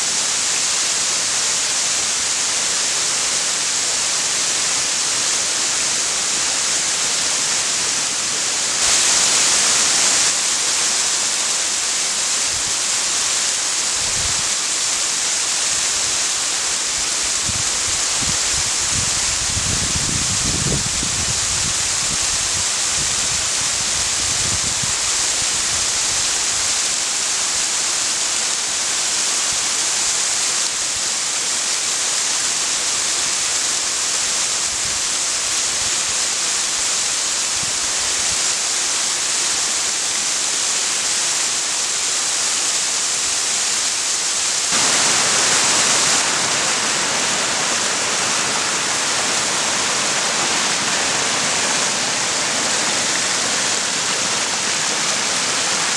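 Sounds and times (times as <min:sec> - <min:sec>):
waterfall rushing: 0:00.0 - 0:55.9.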